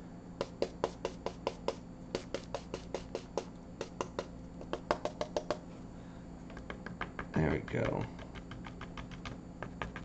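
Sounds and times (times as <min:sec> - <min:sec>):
paintbrush dabbing on canvas: 0:00.7 - 0:04.3.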